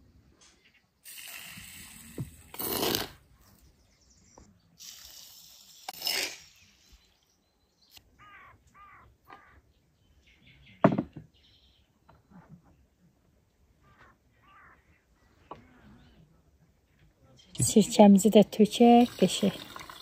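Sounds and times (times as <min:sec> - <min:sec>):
bird harsh calls: 0:08.1 - 0:11.9, 0:13.8 - 0:15.9.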